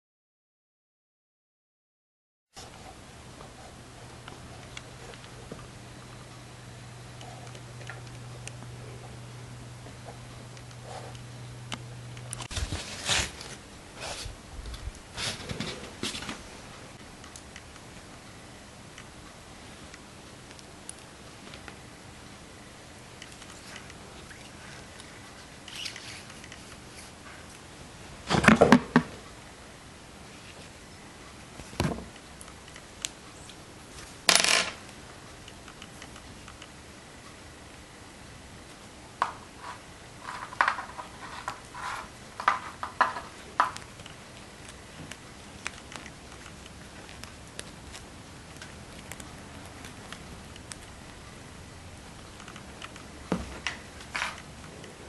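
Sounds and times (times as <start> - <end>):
hands handling paper and pen: 39.6 - 50.9.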